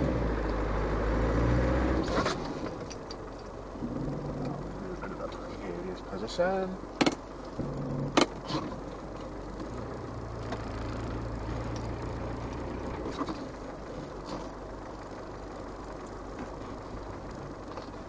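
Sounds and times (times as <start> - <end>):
diesel engine droning under load: 0.0 - 18.0
sharp knocks: 7.0 - 8.4.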